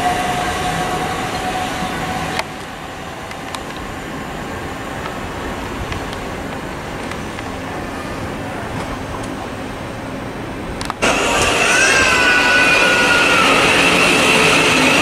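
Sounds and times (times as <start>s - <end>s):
background traffic noise: 0.0s - 11.1s
rail noise: 0.0s - 15.0s
electric train motors whining: 11.0s - 15.0s.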